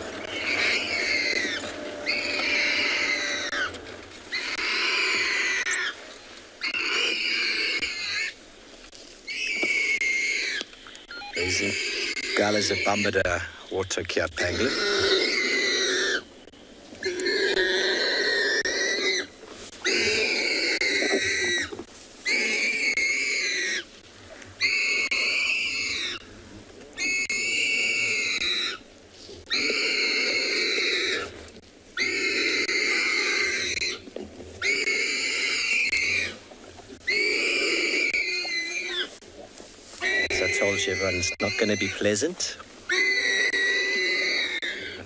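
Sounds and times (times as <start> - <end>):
warthog squealing: 0.0 - 6.0, 6.6 - 8.4, 9.3 - 16.3, 17.0 - 23.9, 24.6 - 26.3, 27.0 - 28.8, 29.5 - 31.4, 32.0 - 36.4, 37.0 - 39.2, 40.0 - 45.0.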